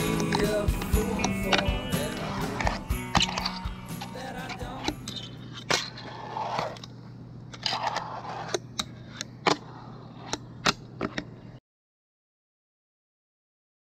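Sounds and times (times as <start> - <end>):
fingerboard wheels scraping: 1.5 - 11.5.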